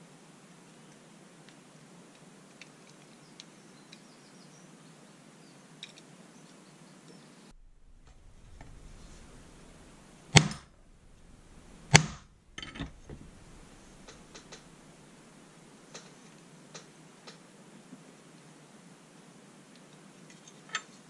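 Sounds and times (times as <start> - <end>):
faint clicks: 7.1 - 17.4
hammer blows on steel: 7.6 - 15.1.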